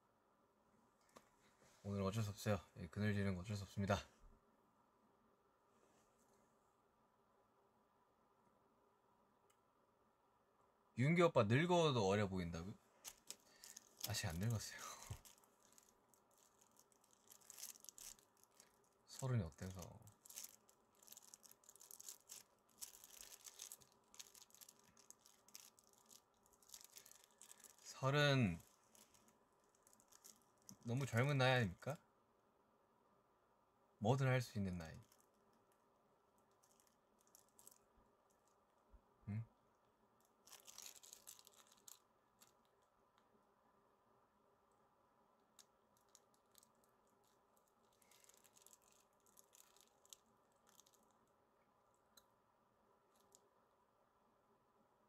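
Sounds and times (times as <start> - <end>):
faint high-pitched crackling: 11.9 - 32.0, 34.0 - 39.0, 39.6 - 43.5, 44.5 - 54.1.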